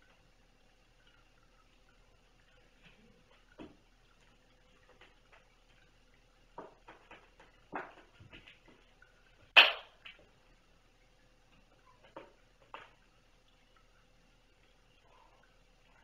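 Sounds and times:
kittens playing taps and scuffles: 0:06.6 - 0:08.9.

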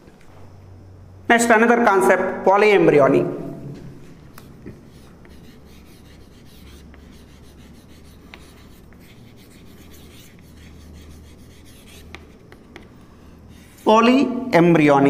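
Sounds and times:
low steady hum: 0:00.0 - 0:15.0
chalk scratching on blackboard: 0:04.0 - 0:14.1.

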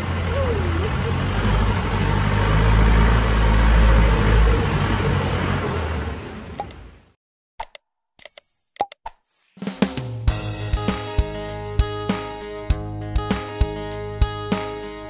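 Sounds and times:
boat engine running: 0:00.0 - 0:07.0.

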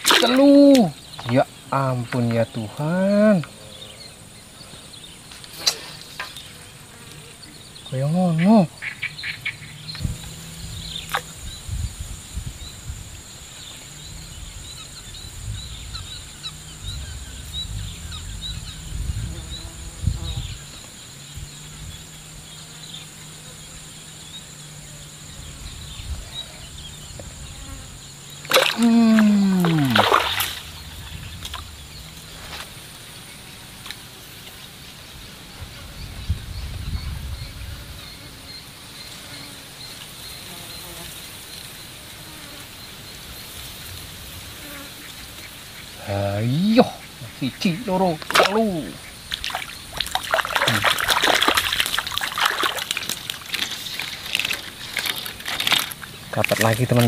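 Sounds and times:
bird chirps: 0:00.0 - 0:11.8
high insect drone: 0:00.0 - 0:57.0
low rumble: 0:15.4 - 0:20.2, 0:30.0 - 0:33.4.

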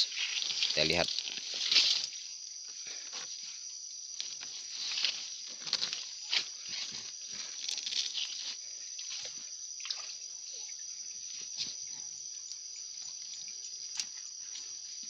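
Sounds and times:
high-pitched insect drone: 0:00.0 - 0:15.0
small splashes: 0:09.0 - 0:10.8
water sloshing and dripping: 0:09.0 - 0:11.8.

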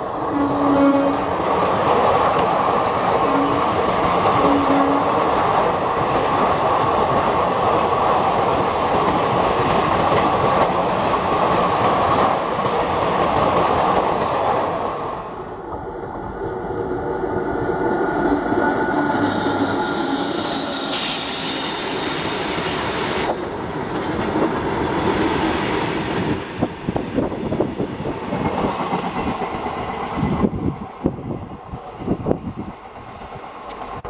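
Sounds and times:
train wheels rumbling on rail: 0:00.0 - 0:34.0
thin high tones: 0:15.0 - 0:23.2.

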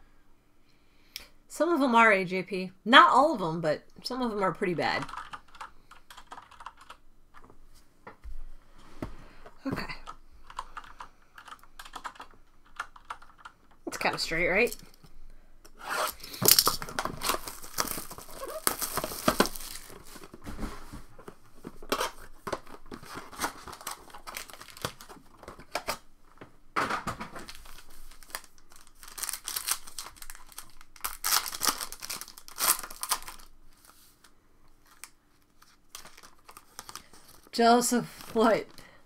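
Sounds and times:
foil wrappers crinkling and tearing: 0:16.1 - 0:20.4, 0:21.8 - 0:26.0, 0:27.4 - 0:38.8.

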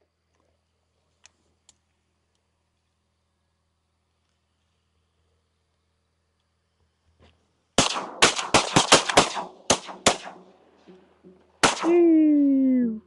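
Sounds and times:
shotgun shots with echo: 0:07.8 - 0:10.6, 0:11.6 - 0:12.0.

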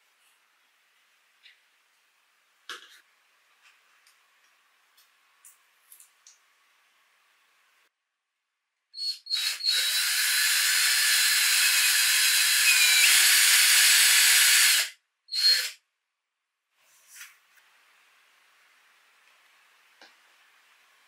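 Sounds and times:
power drill whining: 0:09.0 - 0:15.8.

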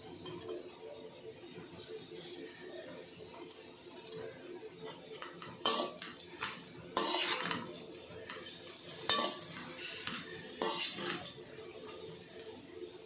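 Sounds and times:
metal ladle scraping steel pan: 0:07.0 - 0:07.7, 0:09.1 - 0:11.3.

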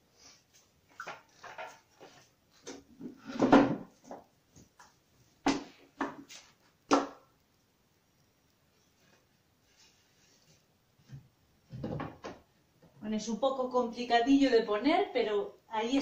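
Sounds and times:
picture frames knocking: 0:11.1 - 0:12.5.

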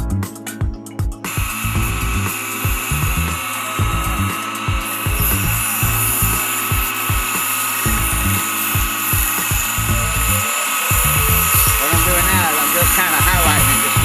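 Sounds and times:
belt sander whining: 0:01.3 - 0:14.0
uneven low rumbling: 0:01.6 - 0:02.3, 0:02.9 - 0:04.3, 0:09.8 - 0:10.4.

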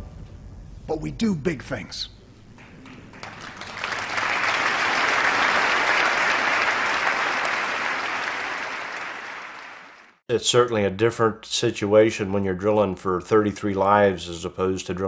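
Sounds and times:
audience applauding: 0:02.7 - 0:10.2.

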